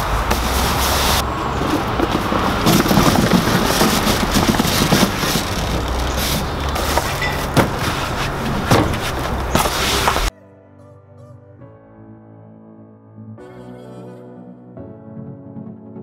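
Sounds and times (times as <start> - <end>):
bags rustling: 0.0 - 10.3
items knocking against hard case: 1.2 - 10.3
soft music: 10.3 - 16.0.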